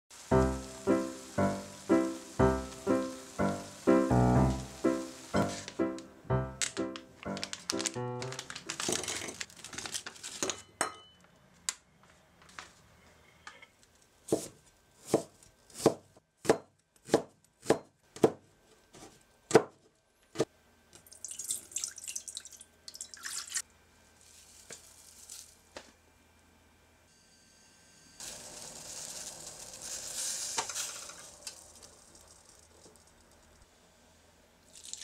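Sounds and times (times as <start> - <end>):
high hissing rustle: 0.1 - 8.7, 28.2 - 33.1
plastic pouch crinkling: 4.4 - 10.5, 28.2 - 33.0
knife chopping on wooden board: 14.3 - 18.4.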